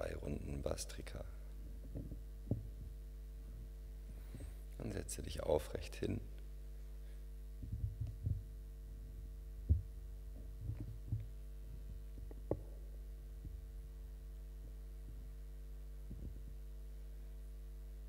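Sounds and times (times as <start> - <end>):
steady electrical hum: 0.0 - 18.0
microphone handling thumps: 1.6 - 3.1, 7.6 - 12.8, 13.4 - 13.8, 16.0 - 16.6.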